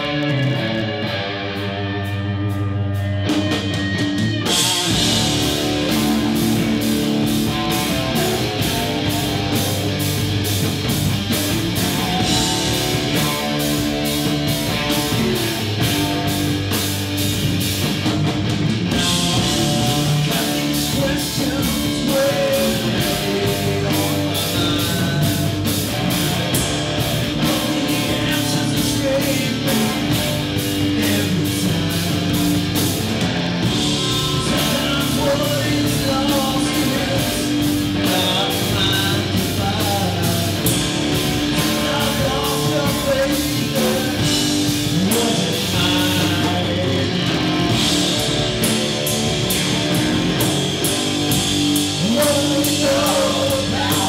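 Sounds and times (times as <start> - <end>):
bass guitar: 0.0 - 54.0
electric guitar: 0.0 - 54.0
steady drum beat: 0.0 - 54.0.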